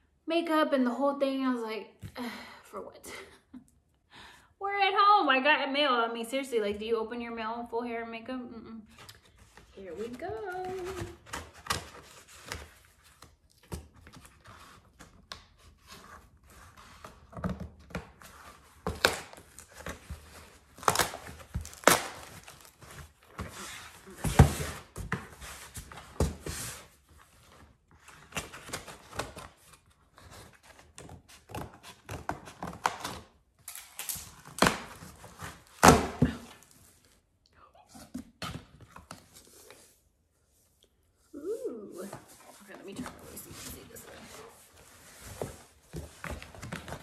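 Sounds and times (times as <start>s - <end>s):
cardboard scraping and rustling: 42.0s - 47.0s.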